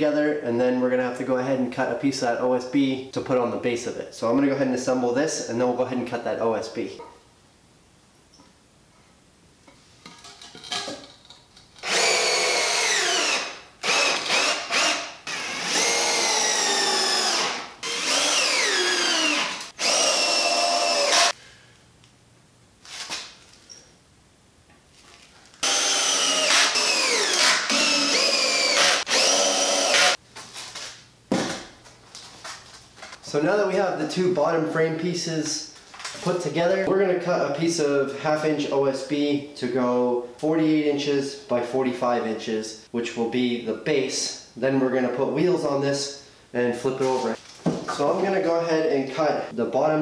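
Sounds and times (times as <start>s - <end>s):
cordless drill driving screws: 11.8s - 21.3s, 25.6s - 30.2s.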